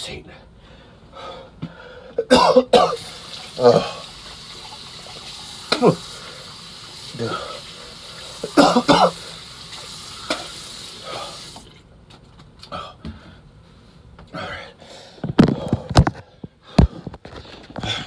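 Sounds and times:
person vomiting into toilet: 0:02.2 - 0:04.8, 0:05.5 - 0:06.3, 0:08.2 - 0:09.4, 0:10.2 - 0:11.6.

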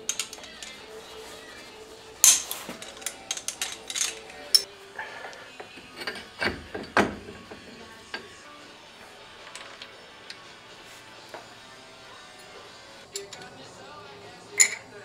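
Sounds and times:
torque wrench clicks and clinks: 0:00.0 - 0:00.8, 0:02.2 - 0:04.7, 0:13.1 - 0:13.5.

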